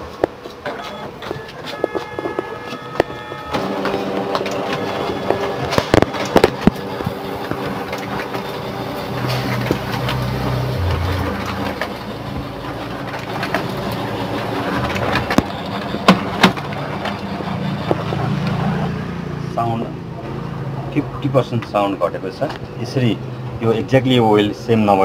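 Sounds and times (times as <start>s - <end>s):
laser printer whirring: 0.0s - 19.5s
sharp printer clicks: 0.2s - 10.3s, 12.8s - 18.6s.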